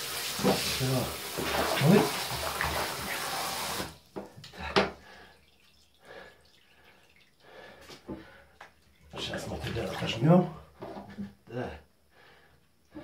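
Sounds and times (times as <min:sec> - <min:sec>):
shower spraying into bathtub: 0:00.0 - 0:04.0
water dripping and trickling: 0:00.0 - 0:10.2.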